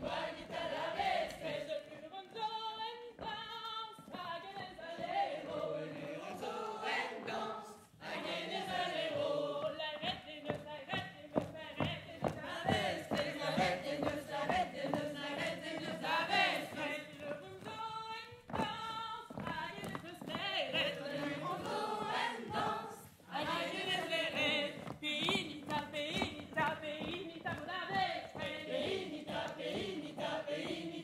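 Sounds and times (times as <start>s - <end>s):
choir singing: 0.0s - 2.8s, 4.6s - 10.0s, 12.4s - 17.1s, 20.7s - 24.8s, 28.0s - 31.0s.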